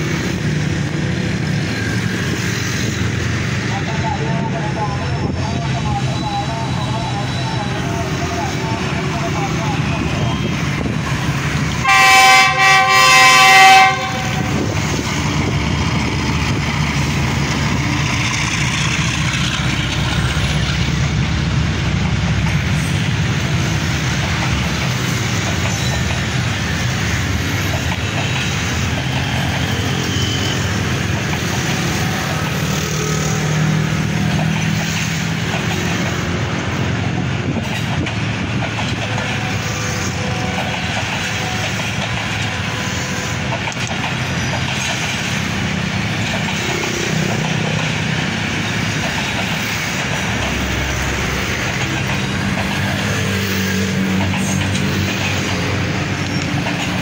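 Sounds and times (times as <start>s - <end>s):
train coaches rumbling past: 0.0s - 57.0s
locomotive horn: 11.8s - 14.7s, 39.1s - 43.4s.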